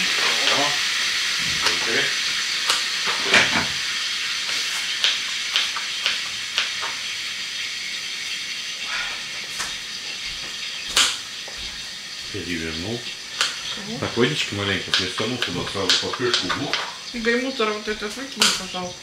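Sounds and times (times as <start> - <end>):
meat sizzling in a frying pan: 0.0 - 19.0.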